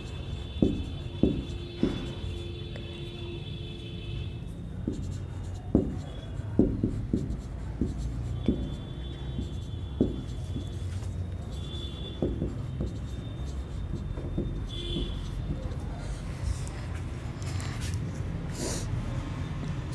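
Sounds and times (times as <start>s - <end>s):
marker pen tapping on whiteboard: 0.0s - 2.9s, 4.7s - 15.9s.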